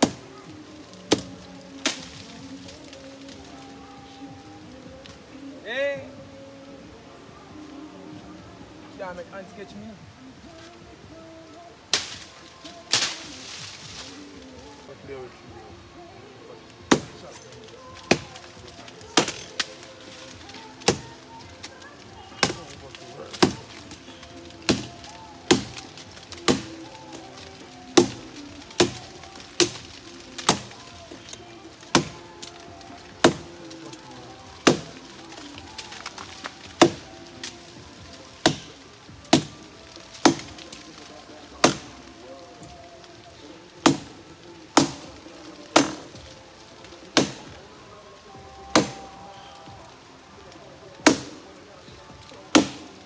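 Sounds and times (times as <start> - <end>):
axe chopping firewood: 0.0 - 3.6, 11.9 - 14.2, 16.8 - 42.8, 43.4 - 47.7, 48.6 - 50.0, 50.9 - 51.6, 52.2 - 53.0
faint music: 0.0 - 53.0.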